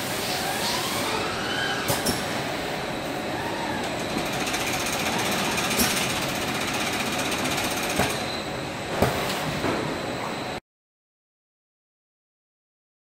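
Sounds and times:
packing machine clatter: 3.9 - 8.3.

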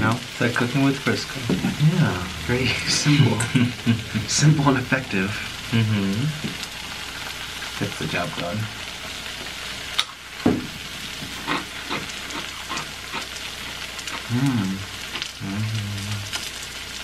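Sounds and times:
cheese sizzling on a griddle: 0.0 - 17.0
person humming: 14.2 - 16.4.

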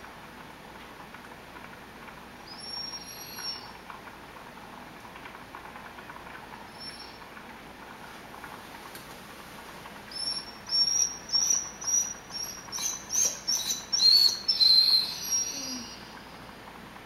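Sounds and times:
dog whining: 2.5 - 3.8, 6.7 - 7.2, 10.1 - 16.4.

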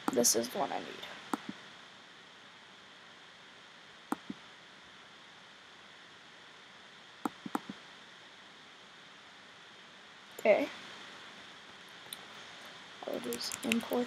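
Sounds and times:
steady low hiss: 0.0 - 14.0
computer mouse clicks: 1.3 - 1.6, 4.1 - 4.4, 7.3 - 7.8.

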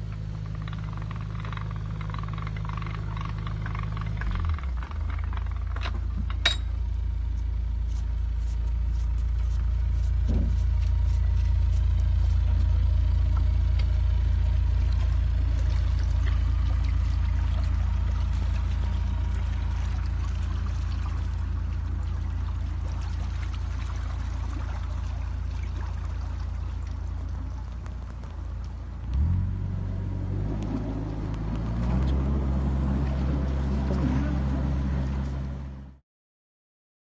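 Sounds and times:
water churning: 0.0 - 6.5, 14.1 - 35.8
boat diesel engine running: 0.0 - 36.0.

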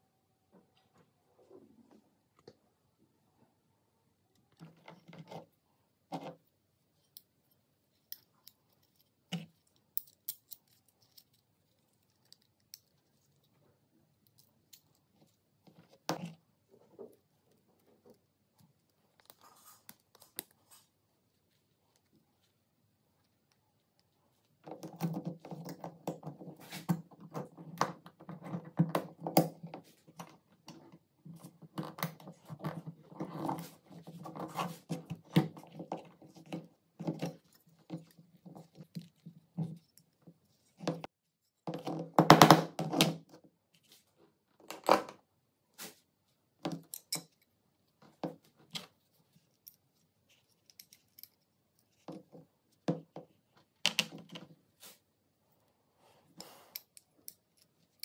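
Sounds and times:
metal parts clicking and scraping: 8.0 - 13.1.

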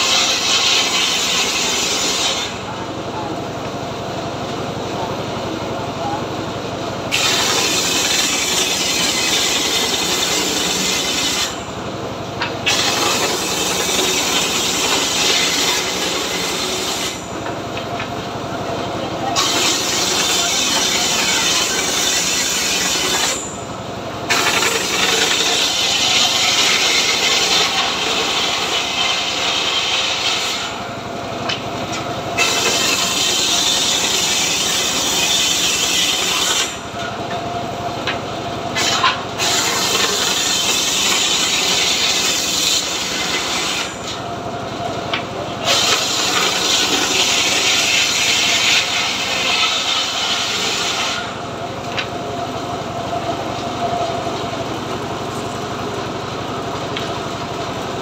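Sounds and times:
circular saw cutting log: 0.0 - 2.8, 7.1 - 18.1, 19.2 - 37.4, 38.0 - 44.4, 45.1 - 56.1
engine running: 43.9 - 58.0.

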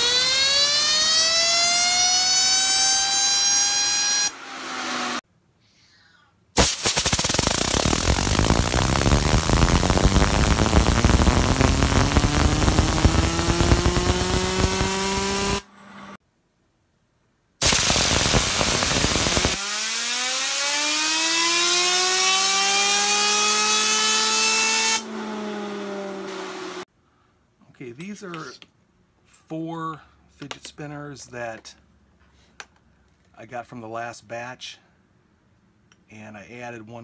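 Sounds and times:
compressed air hissing: 6.6 - 13.1, 17.6 - 19.6.

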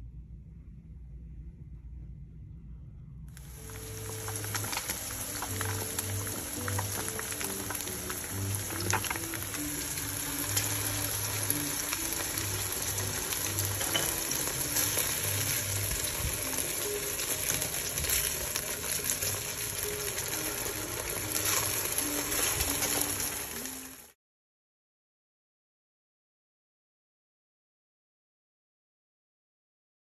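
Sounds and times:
soft background music: 0.2 - 24.2
patties sizzling in oil: 3.4 - 24.2.

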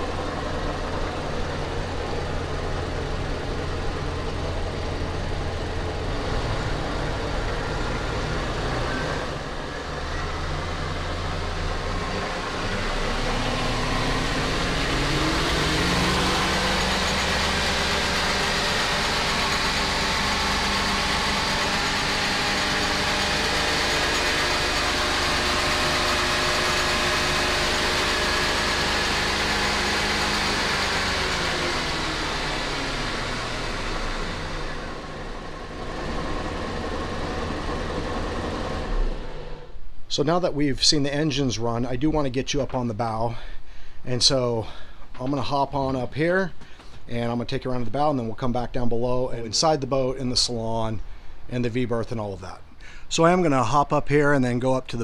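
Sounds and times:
boat engines revving: 0.0 - 39.7.

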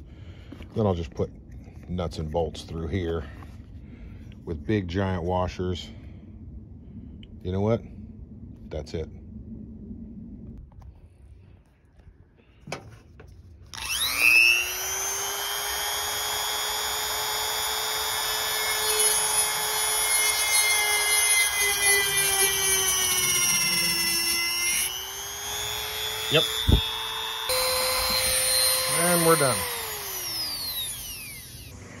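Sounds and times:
rotary tool cutting plastic: 13.7 - 31.8.

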